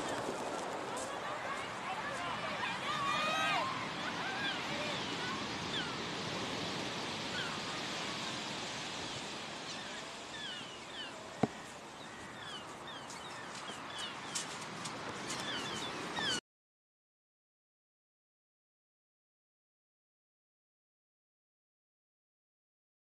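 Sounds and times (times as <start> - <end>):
surf on shingle beach: 0.0 - 16.4.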